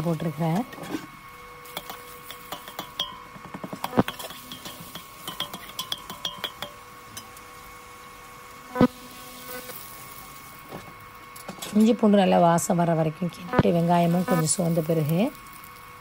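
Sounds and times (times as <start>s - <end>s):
ladle clinking against metal pot: 1.8s - 7.3s.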